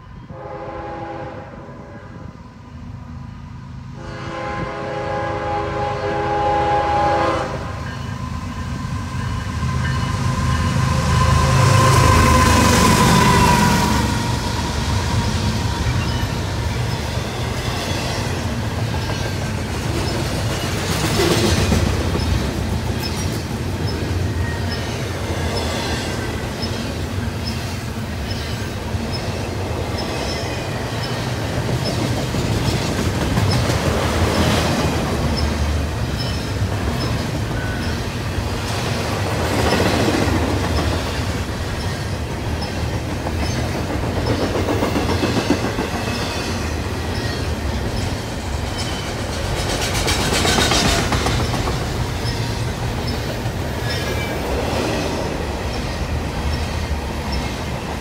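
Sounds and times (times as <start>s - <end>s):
train wheels rumbling and clacking: 4.0s - 58.0s.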